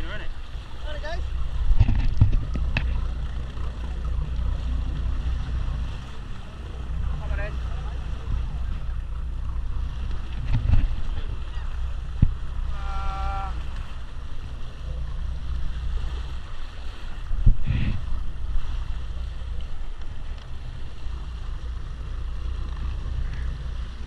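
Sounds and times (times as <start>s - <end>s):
wind on microphone: 0.0s - 24.0s.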